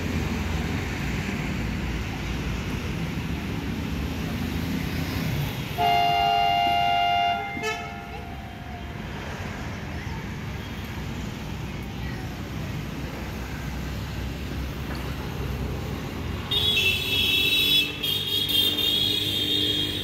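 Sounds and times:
low rumble of train: 0:00.0 - 0:16.4
train horn blast: 0:05.8 - 0:08.3.

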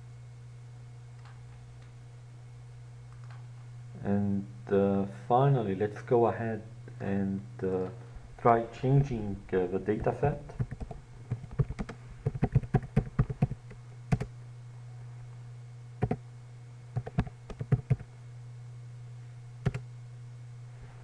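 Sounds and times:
steady low hum: 0:00.0 - 0:21.0
computer keyboard typing: 0:10.5 - 0:14.3, 0:16.0 - 0:16.2, 0:17.0 - 0:18.1, 0:19.6 - 0:19.8.

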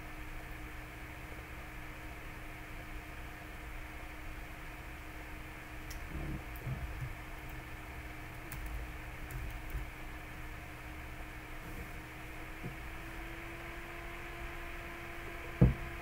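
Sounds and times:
low electrical hum: 0:00.0 - 0:16.0
keyboard clicks: 0:08.4 - 0:09.8.

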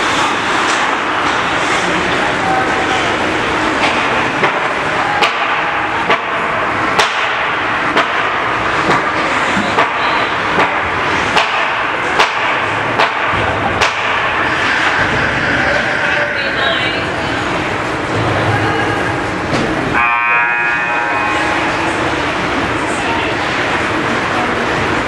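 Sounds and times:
ice rink crowd noise: 0:00.0 - 0:25.0
sharp repeating knock: 0:07.0 - 0:09.1, 0:10.6 - 0:14.4.

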